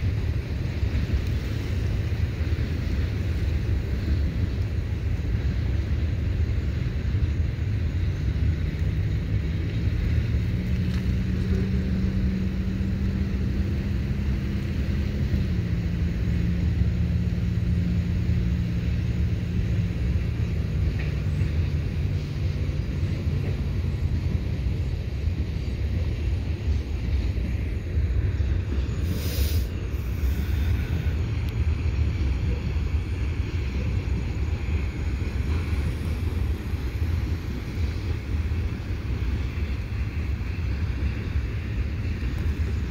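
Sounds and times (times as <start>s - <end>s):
diesel locomotive engine drone: 0.0s - 42.9s
freight train rumbling past: 0.0s - 42.9s
brief hiss: 28.8s - 31.2s.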